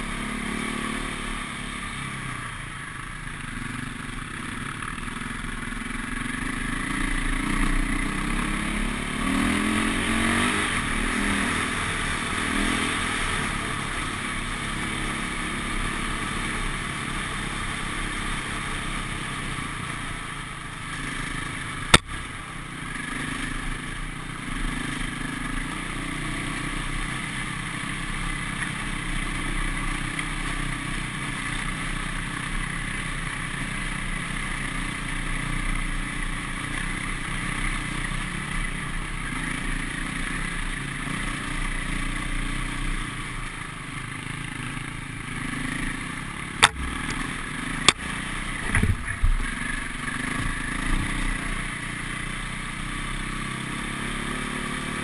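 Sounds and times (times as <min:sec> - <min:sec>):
motorcycle engine revving: 0:00.0 - 0:55.0
sharp knock: 0:46.6 - 0:47.2.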